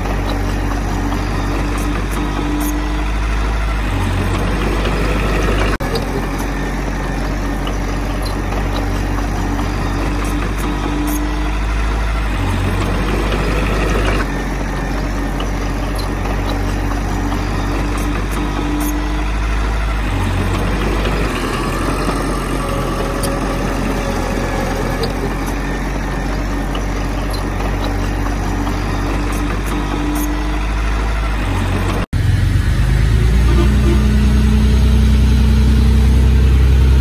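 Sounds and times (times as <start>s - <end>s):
heavy diesel engine running: 0.0s - 37.0s.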